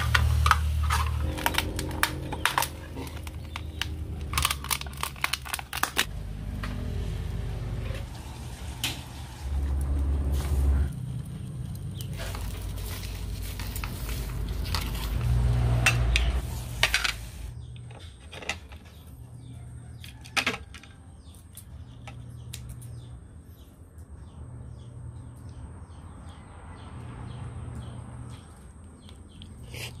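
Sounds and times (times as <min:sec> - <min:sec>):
low rumble: 0:00.0 - 0:16.8.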